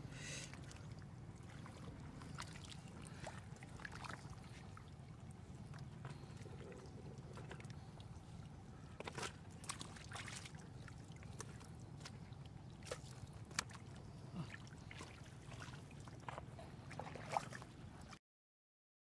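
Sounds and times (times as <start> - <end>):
hands squelching through wet mud: 0.5 - 18.2
short wet clicks and crackles: 12.8 - 13.9.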